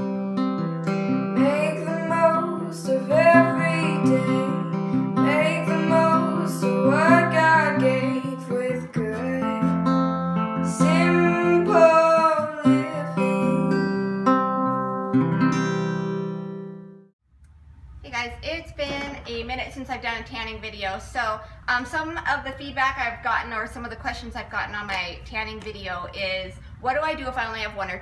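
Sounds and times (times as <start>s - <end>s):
strummed acoustic guitar: 0.0s - 17.0s
person singing: 1.1s - 14.2s.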